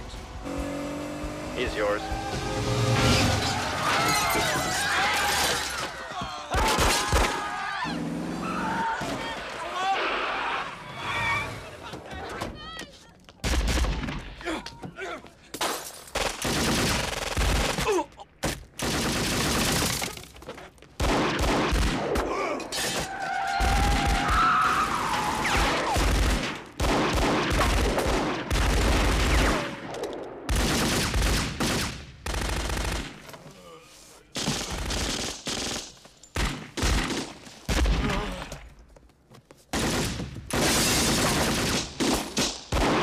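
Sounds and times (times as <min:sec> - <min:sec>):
automatic gunfire: 0:18.8 - 0:20.1.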